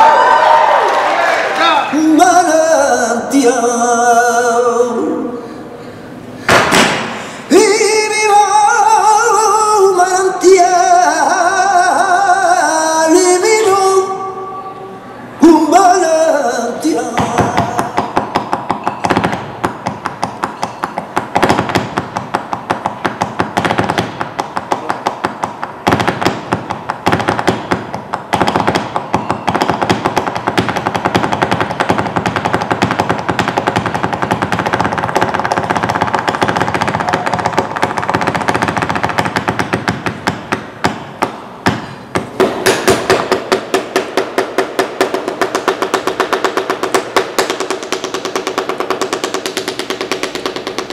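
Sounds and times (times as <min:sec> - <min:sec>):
dance shoes striking wooden floor: 0:06.5 - 0:07.2, 0:17.2 - 0:50.9.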